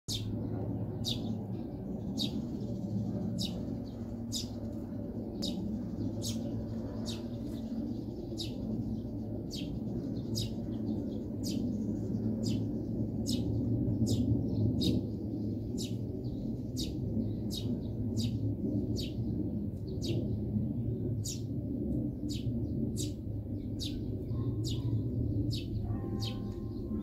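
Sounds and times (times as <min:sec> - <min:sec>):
sparrow chirping: 0:00.1 - 0:21.5, 0:22.2 - 0:27.0
low background rumble: 0:00.1 - 0:27.0.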